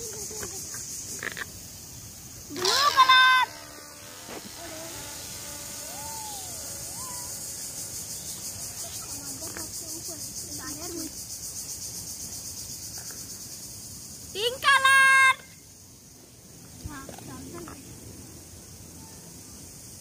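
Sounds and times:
insect chirring: 0.0 - 20.0
distant voices: 2.5 - 11.2.

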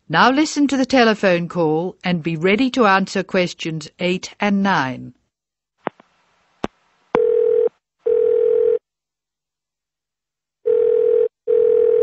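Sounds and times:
telephone ringing tone: 7.2 - 8.8, 10.6 - 12.0.

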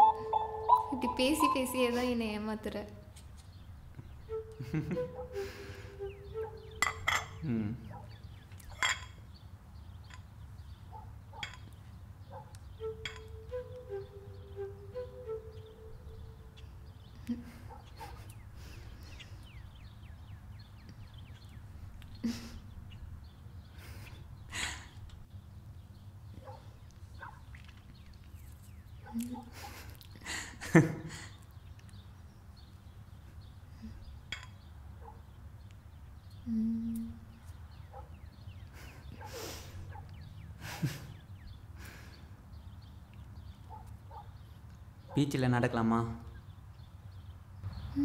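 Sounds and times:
faint bird chirps: 0.0 - 2.7, 3.4 - 25.0, 31.3 - 45.3, 47.6 - 48.0
soft background music: 0.0 - 3.1, 4.2 - 7.4, 12.6 - 16.8
ceramic cups clinking on saucers: 6.8 - 7.4, 8.7 - 9.2.

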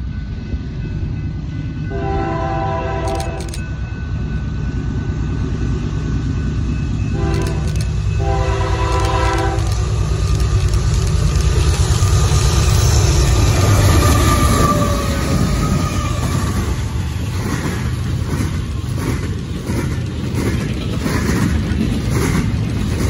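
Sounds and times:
low rumble of train: 0.0 - 23.0
locomotive air horn blasts: 1.9 - 3.4, 7.2 - 9.7.

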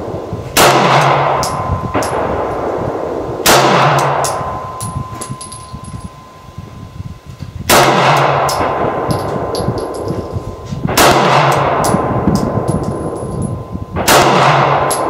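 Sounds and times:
pistol shots echoing: 0.6 - 4.8, 7.7 - 9.8, 10.9 - 12.6, 14.0 - 15.0.

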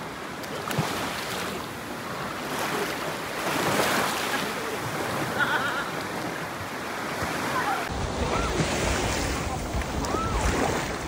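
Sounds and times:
ocean surf washing ashore: 0.0 - 11.0.

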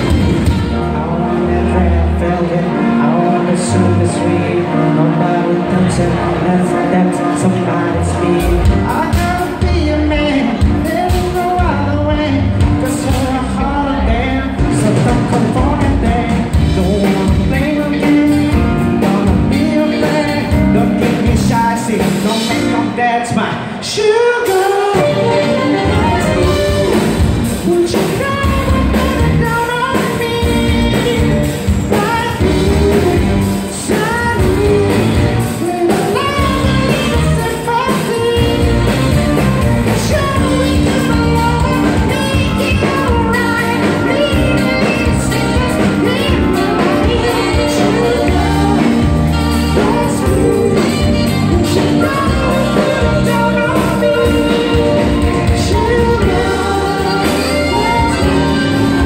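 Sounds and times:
saxophone: 0.0 - 11.3, 24.2 - 59.0
drums: 0.0 - 59.0
guitar: 0.0 - 59.0
keyboards: 0.0 - 59.0
lead vocals: 0.0 - 59.0.

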